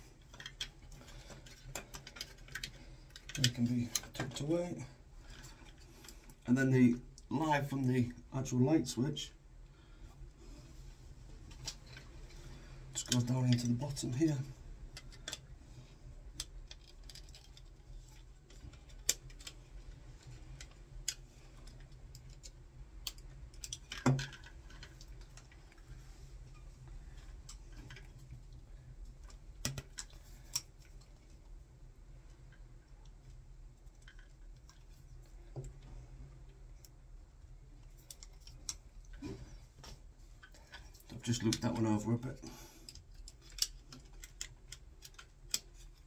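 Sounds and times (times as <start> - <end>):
small clicks of electrical work: 0.0 - 4.6, 11.4 - 46.0.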